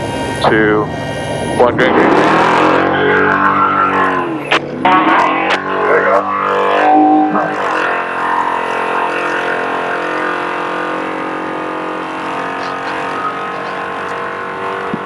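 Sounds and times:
rushing noise: 0.0 - 9.1
truck engine drone: 0.0 - 15.0.

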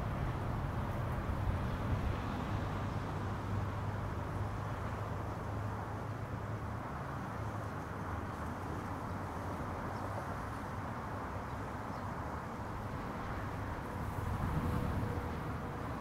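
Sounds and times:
distant road traffic rumble: 0.0 - 16.0
wind noise: 12.8 - 16.0.

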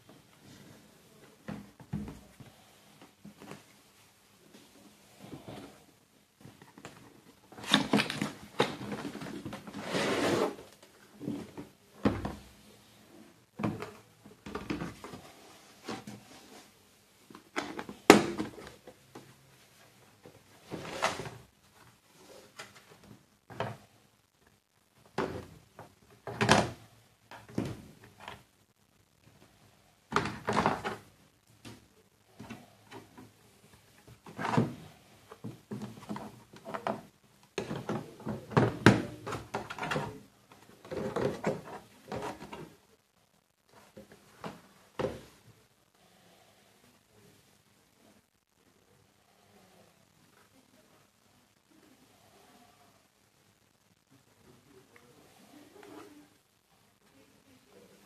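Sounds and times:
plastic case opening: 7.6 - 9.8.

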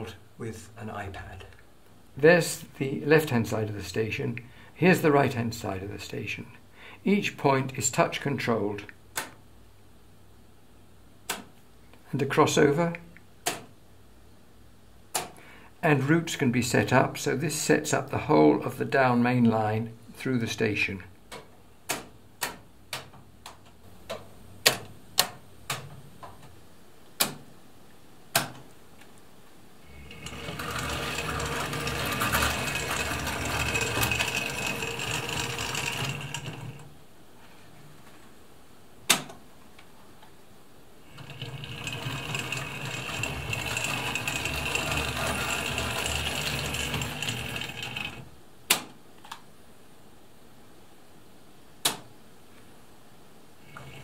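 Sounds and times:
model train running on track: 30.2 - 36.7, 41.2 - 48.2.

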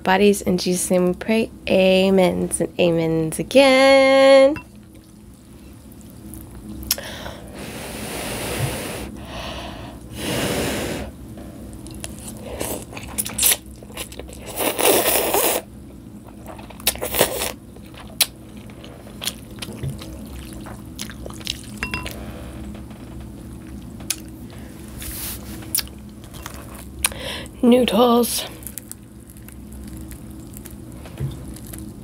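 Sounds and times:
wet chewing: 11.7 - 15.6, 16.2 - 22.2, 23.5 - 24.6, 25.3 - 27.2, 28.5 - 32.0
noodles being slurped: 12.1 - 15.7.

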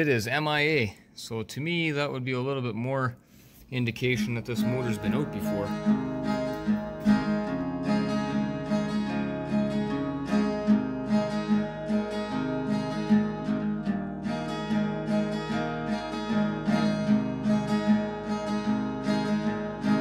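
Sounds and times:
guitar strummed: 4.1 - 20.0.

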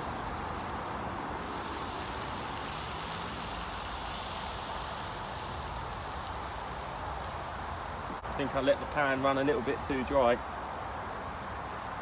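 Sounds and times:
beer sizzling in hot pan: 0.0 - 12.0.

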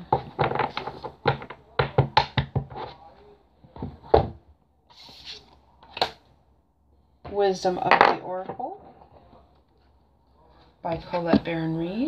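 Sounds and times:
cards tapping and clicking on table: 0.0 - 2.9.

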